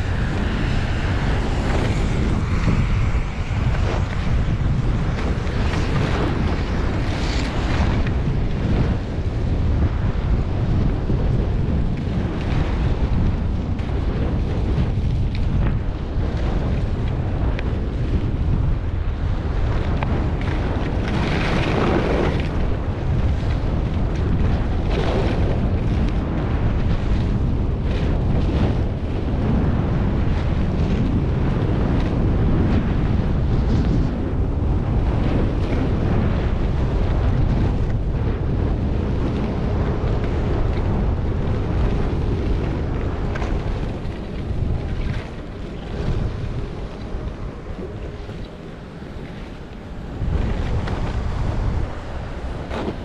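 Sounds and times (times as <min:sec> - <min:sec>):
wind buffeting microphone: 0:00.0 - 0:53.0.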